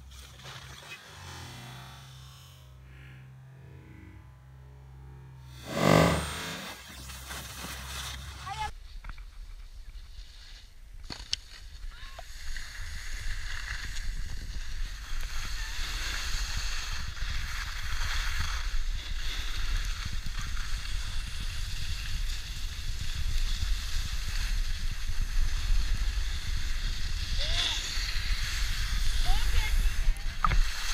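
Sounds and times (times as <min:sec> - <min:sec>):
skis scraping on snow: 0:05.6 - 0:08.7, 0:09.9 - 0:30.9.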